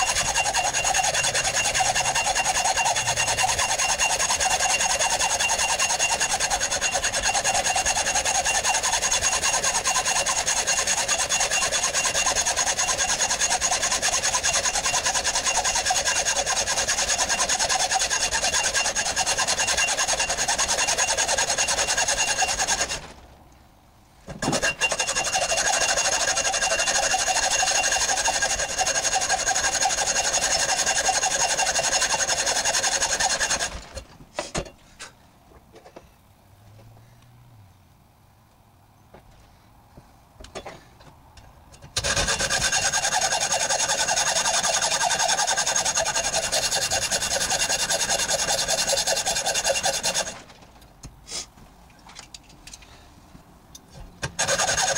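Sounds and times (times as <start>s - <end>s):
hacksaw cutting steel: 0.0s - 23.1s, 24.3s - 34.7s, 41.8s - 50.6s, 54.2s - 54.9s.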